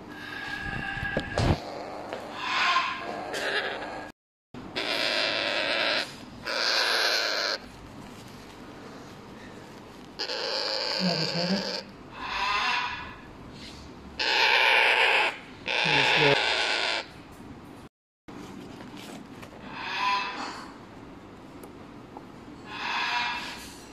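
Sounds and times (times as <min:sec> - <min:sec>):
parrot chicks calling harshly: 0:04.7 - 0:07.6, 0:10.2 - 0:13.3, 0:14.2 - 0:17.2.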